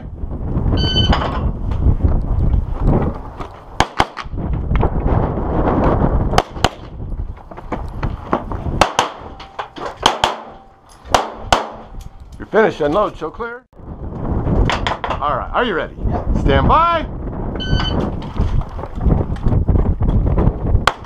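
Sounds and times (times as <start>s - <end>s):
pistol shots: 3.8s - 4.3s, 8.8s - 9.4s, 10.0s - 12.0s
low rumbling noise: 13.8s - 17.7s.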